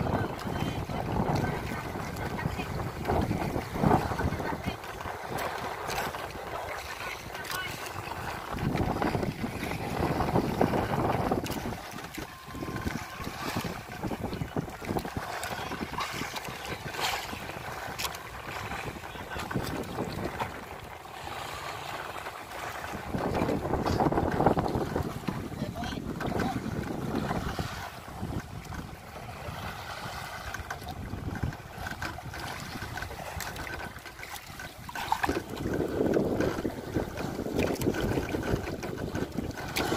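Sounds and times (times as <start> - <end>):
water splashing against boat: 0.0 - 39.9
wind buffeting microphone: 0.0 - 39.9.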